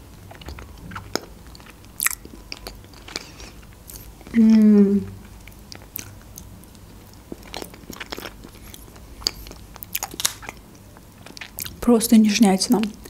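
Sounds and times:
wet chewing and mouth clicks: 0.2s - 4.7s, 5.3s - 11.8s.

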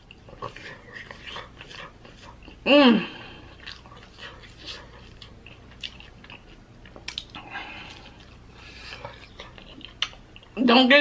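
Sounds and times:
wet chewing and lip smacks: 0.0s - 2.6s, 3.4s - 10.6s
sharp clicks of biting: 6.9s - 7.4s.

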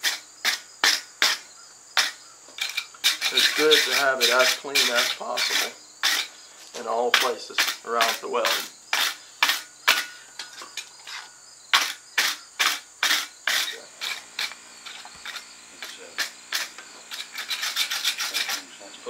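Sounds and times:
wire brush scraping steel: 0.0s - 19.0s.

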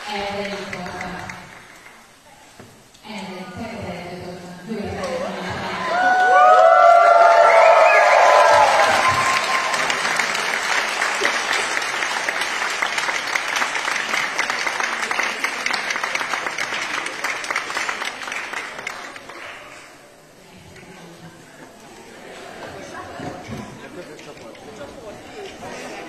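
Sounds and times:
group applause: 5.8s - 20.0s.

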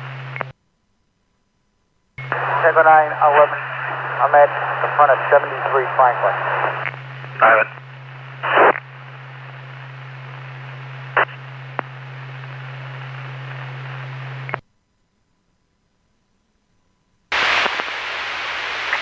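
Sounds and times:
low hum: 0.0s - 18.8s
radio static hiss: 2.2s - 14.6s, 17.3s - 19.0s.

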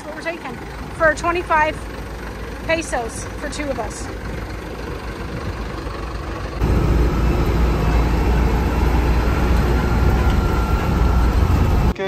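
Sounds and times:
bus driving rumble and road noise: 0.0s - 12.0s
bus engine idling: 0.0s - 12.0s.

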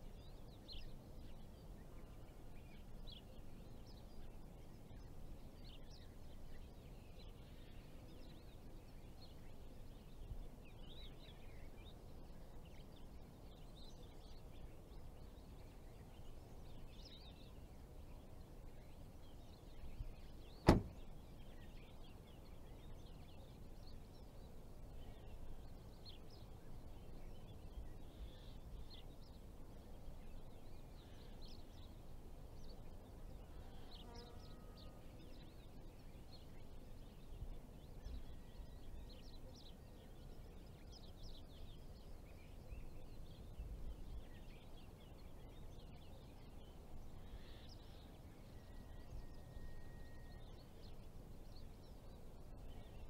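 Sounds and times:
small birds chirping: 0.0s - 53.0s.

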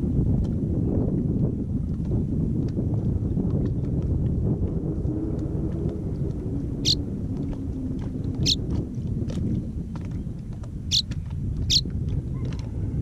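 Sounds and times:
wind rumble on microphone: 0.0s - 13.0s
swallow chirping: 8.4s - 8.6s.

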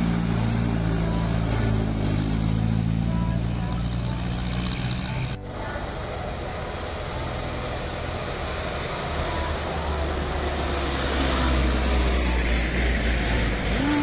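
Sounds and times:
diesel truck engines droning: 0.0s - 14.0s.

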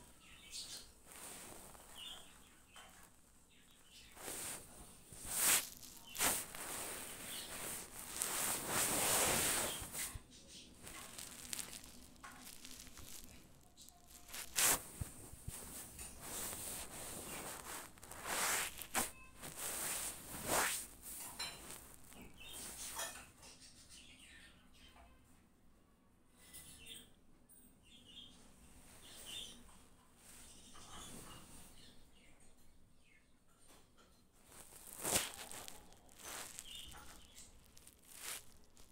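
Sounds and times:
squirrel scratching on towel: 0.2s - 3.2s, 3.8s - 23.1s, 34.5s - 38.9s.

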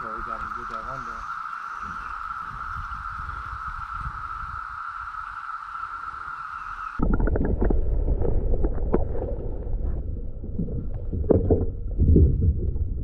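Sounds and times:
cicada chorus drone: 0.0s - 7.0s
wind rumbling on microphone: 0.0s - 13.0s.

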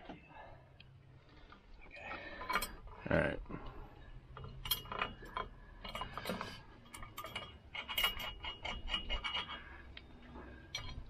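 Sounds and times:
small metal clicks and clinks: 4.3s - 11.0s.

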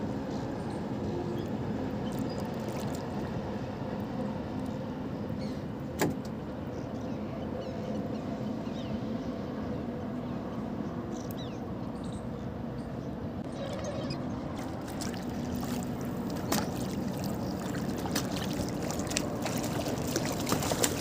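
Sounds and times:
outdoor background noise: 0.0s - 21.0s
low motor hum: 13.4s - 21.0s.

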